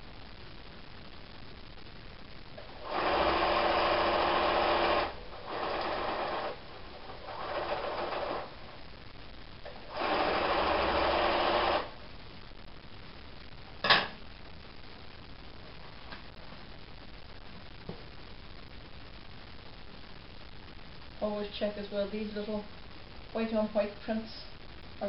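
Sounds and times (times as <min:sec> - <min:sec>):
sewing machine stitching: 0:02.8 - 0:06.6, 0:07.2 - 0:08.5, 0:09.9 - 0:11.9.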